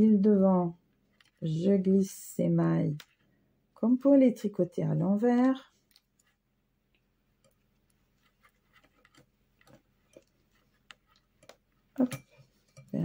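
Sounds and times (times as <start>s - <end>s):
knitting needles clicking: 2.9s - 3.2s, 5.3s - 13.0s.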